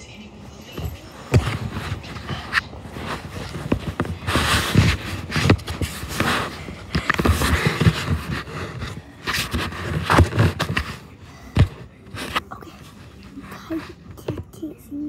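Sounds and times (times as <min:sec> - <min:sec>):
rustling and scuffing: 0:00.5 - 0:14.0.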